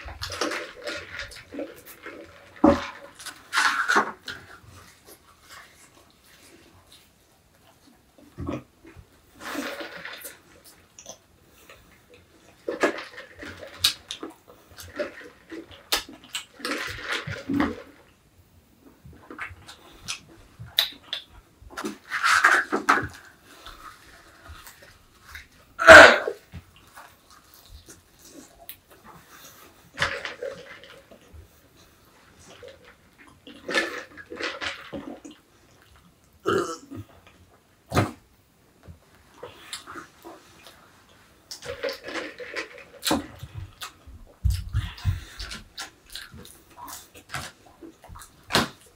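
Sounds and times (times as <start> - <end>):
person burping: 25.8 - 26.4, 36.4 - 37.1.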